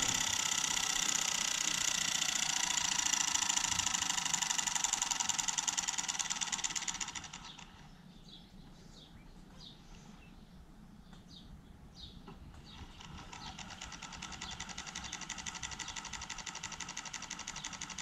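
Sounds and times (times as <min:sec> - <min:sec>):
motor fast buzzing pulse: 0:00.0 - 0:07.9, 0:12.7 - 0:18.0.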